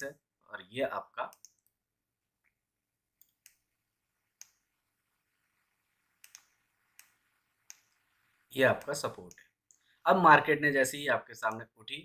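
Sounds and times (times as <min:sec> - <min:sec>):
computer mouse clicks: 0:01.3 - 0:01.8, 0:03.2 - 0:03.6, 0:04.4 - 0:04.6, 0:06.2 - 0:08.0.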